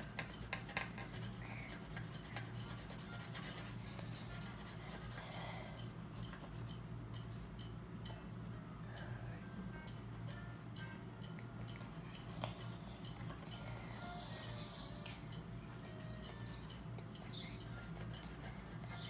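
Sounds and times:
pencil scratching on paper: 0.0s - 6.7s, 17.6s - 19.0s.

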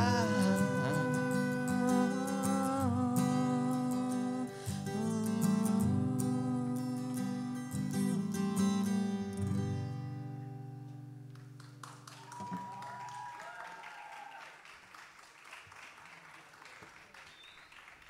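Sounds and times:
acoustic guitar chord ringing: 0.0s - 11.3s
audience applauding: 11.3s - 18.0s.

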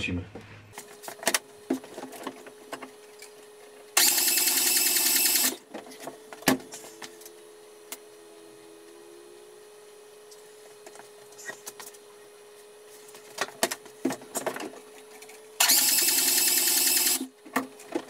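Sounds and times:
starter motor cranking engine: 4.0s - 5.6s, 15.6s - 17.3s.

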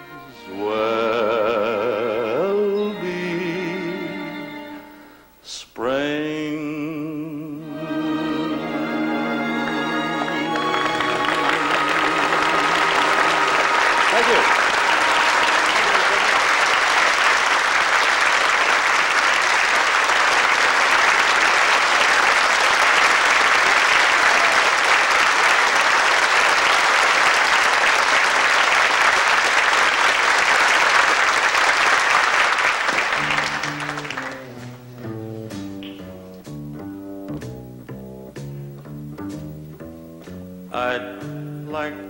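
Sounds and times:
audience applauding: 9.2s - 36.1s
plucked double bass: 33.2s - 42.0s.

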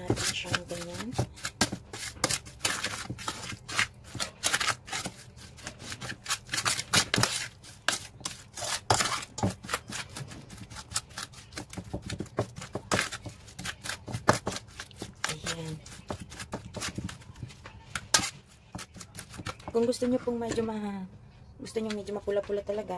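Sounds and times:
metal spoon scraping a pan: 0.0s - 11.6s, 18.0s - 20.7s.

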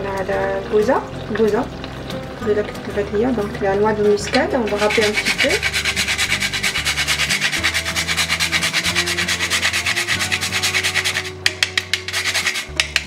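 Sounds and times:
nutmeg scraping on metal grater: 4.5s - 13.0s.

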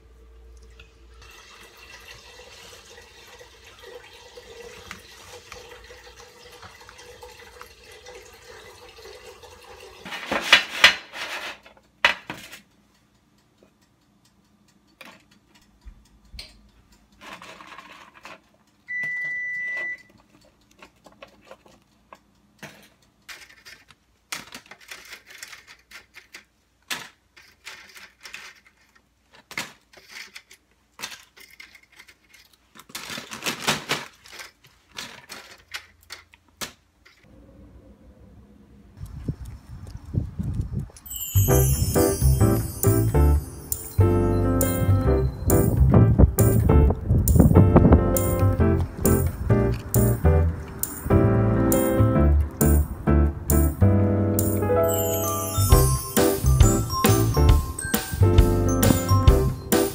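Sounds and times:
appliance beep: 18.9s - 20.2s, 54.8s - 59.9s.

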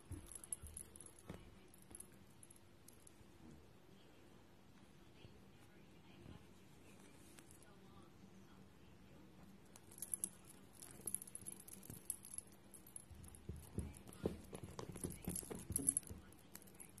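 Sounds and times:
soft thumps and clatter: 0.0s - 2.0s, 10.8s - 16.9s.

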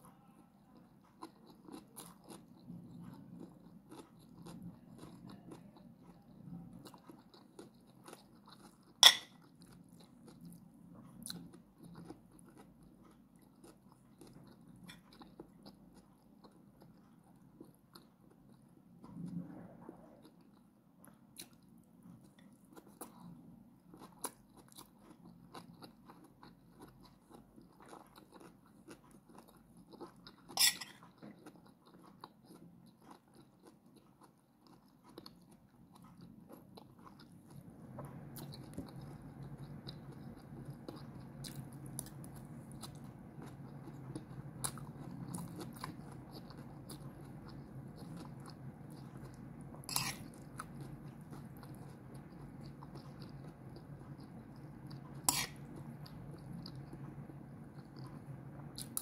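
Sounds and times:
low steady hum: 0.0s - 59.0s
chewing with wet mouth clicks: 0.7s - 19.4s, 20.2s - 59.0s.

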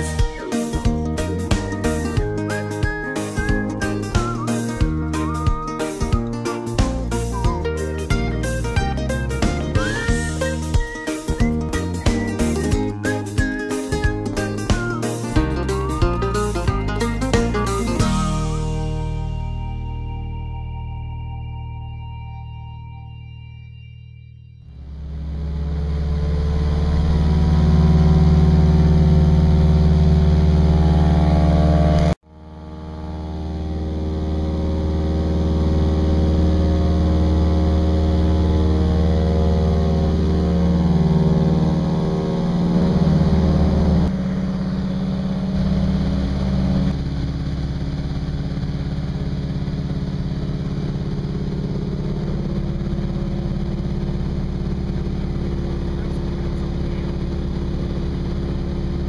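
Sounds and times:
propeller plane engine droning: 24.7s - 59.0s.

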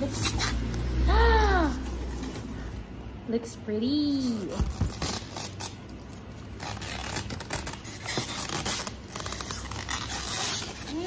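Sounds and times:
plastic bag rustling and crinkling: 4.4s - 11.0s.

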